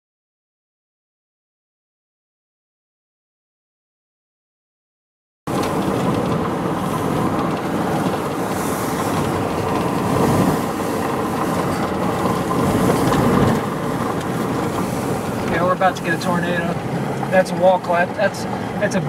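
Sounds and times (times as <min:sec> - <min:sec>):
wind noise: 0:05.5 - 0:17.4
road noise inside vehicle: 0:05.5 - 0:19.0.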